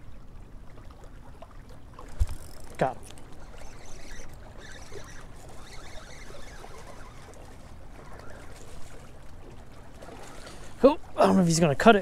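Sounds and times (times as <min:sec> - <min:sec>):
water splashing against rocks: 0:00.7 - 0:12.0
rod handling noise: 0:02.0 - 0:09.1
fishing reel winding: 0:02.1 - 0:07.6.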